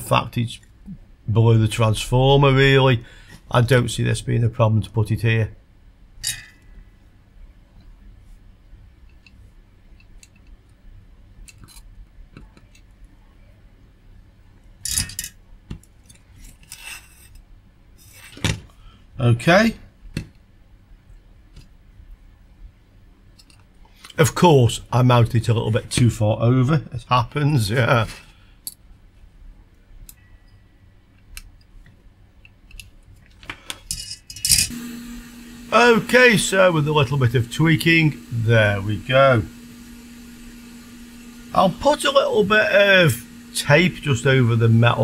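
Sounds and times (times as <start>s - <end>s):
metallic scrape: 16.4s - 17.4s.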